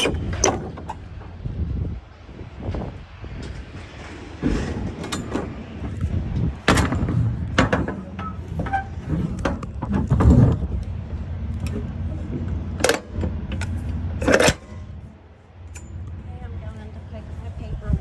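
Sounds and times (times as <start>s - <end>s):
steady low rumble: 0.0s - 18.0s
metal clanks and knocks of doors: 2.7s - 6.0s, 6.6s - 10.8s.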